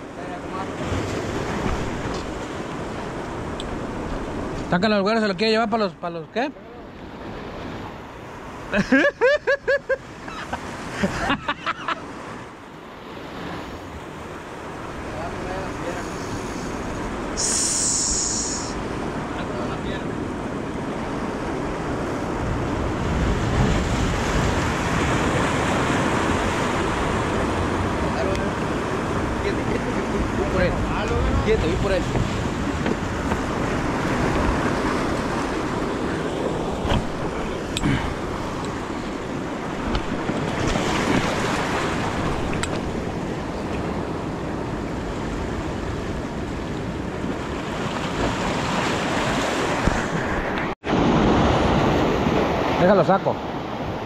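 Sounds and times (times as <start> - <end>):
surf washing over rocks: 0.0 - 54.0
wind on microphone: 13.4 - 52.8.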